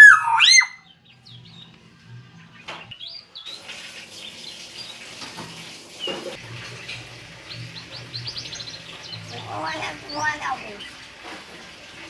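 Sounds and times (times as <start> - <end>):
myna whistling and chirping: 0.0 - 1.0.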